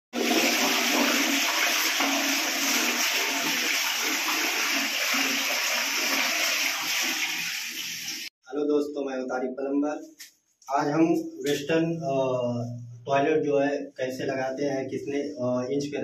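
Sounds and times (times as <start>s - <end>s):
toilet flushing: 0.1s - 8.3s.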